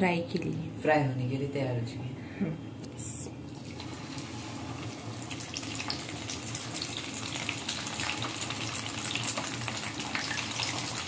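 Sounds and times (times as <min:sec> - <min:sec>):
food deep-frying in hot oil: 0:03.5 - 0:11.0.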